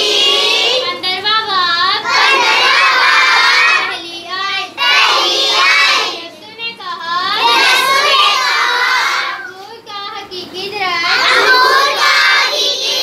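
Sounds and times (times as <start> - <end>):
children chanting in singsong: 0.0 - 1.0, 2.0 - 6.5, 7.2 - 9.7, 11.0 - 13.0.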